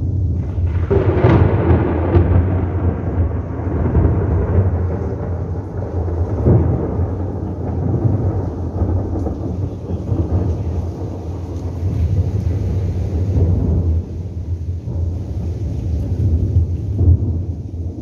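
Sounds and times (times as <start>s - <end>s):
rain: 0.0s - 18.0s
thunder rumbling: 0.0s - 18.0s.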